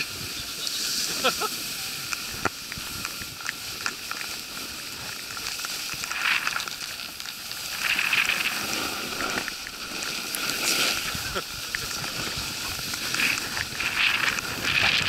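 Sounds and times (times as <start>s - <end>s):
snowboard scraping over snow: 0.0s - 15.0s.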